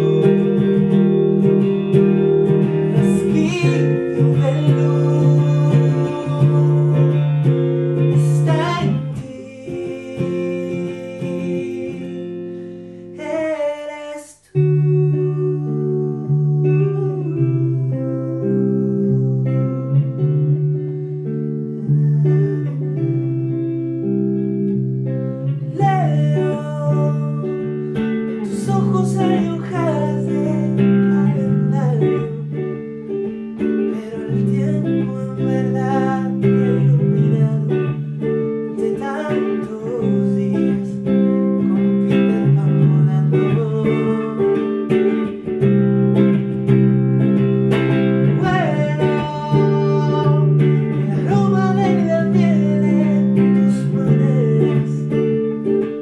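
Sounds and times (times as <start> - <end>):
man singing: 0.0 - 20.8, 21.6 - 24.1, 25.6 - 56.0
electric guitar picked chords: 0.0 - 56.0.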